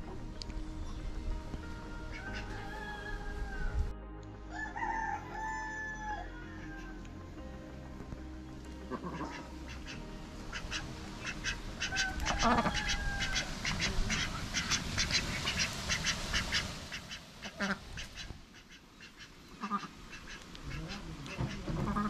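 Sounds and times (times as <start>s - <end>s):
ducks quacking: 2.1s - 2.9s, 8.9s - 22.0s.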